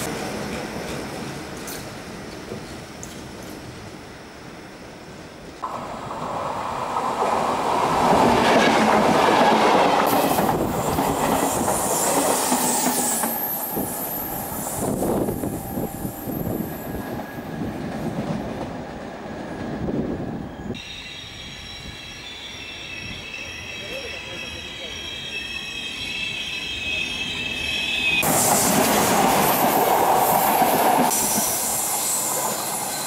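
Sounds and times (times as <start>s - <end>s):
steel wheels squealing: 10.6s - 17.7s, 20.3s - 28.8s, 31.1s - 33.0s.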